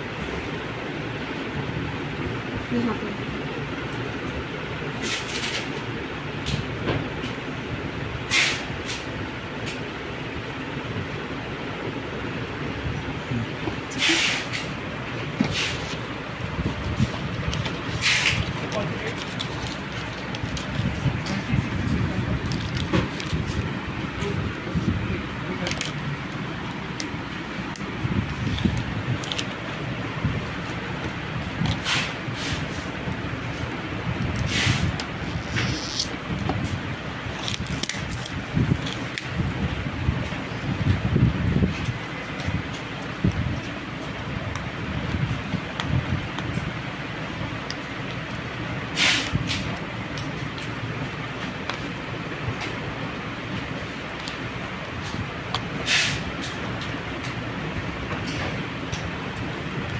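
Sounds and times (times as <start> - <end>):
steady background rumble: 0.0 - 59.9
plastic packaging rustling: 15.7 - 23.8.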